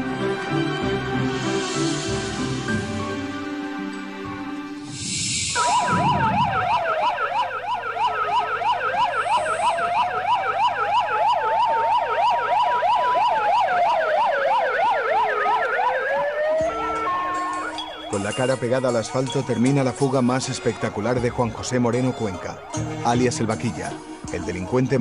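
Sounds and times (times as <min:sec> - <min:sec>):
brief whoosh: 0:04.8 - 0:07.2
stepped alternating siren tones: 0:04.8 - 0:18.2
wailing siren: 0:04.9 - 0:18.4, 0:20.1 - 0:23.2
fast yelping siren: 0:05.5 - 0:18.2.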